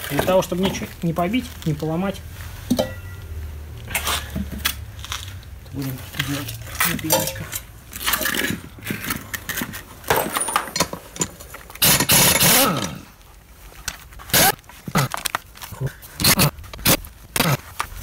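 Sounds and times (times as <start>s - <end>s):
pneumatic impact wrench bursts: 11.8s - 13.0s, 14.3s - 14.6s.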